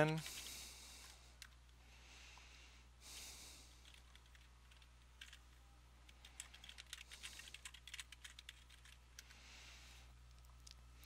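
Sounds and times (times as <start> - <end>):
faint keyboard typing: 0.0 - 1.8, 3.7 - 9.4.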